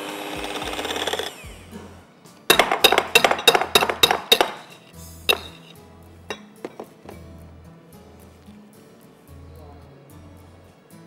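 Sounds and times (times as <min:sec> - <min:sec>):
metal utensil tapping a bowl: 0:02.5 - 0:07.0.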